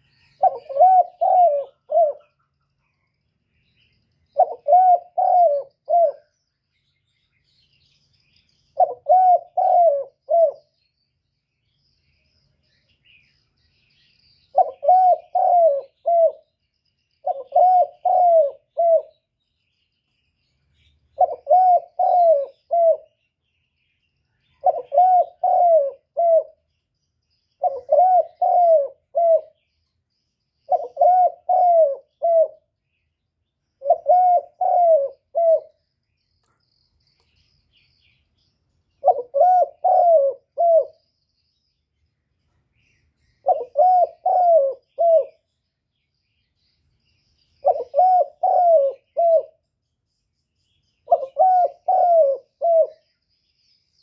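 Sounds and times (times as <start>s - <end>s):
dove cooing: 0.0s - 2.5s, 4.3s - 6.4s, 8.8s - 10.8s, 14.5s - 16.5s, 17.2s - 19.3s, 21.2s - 23.2s, 24.5s - 26.7s, 27.6s - 29.6s, 30.7s - 32.7s, 33.8s - 35.8s, 39.0s - 41.0s, 43.4s - 45.4s, 47.6s - 49.6s, 51.0s - 53.2s.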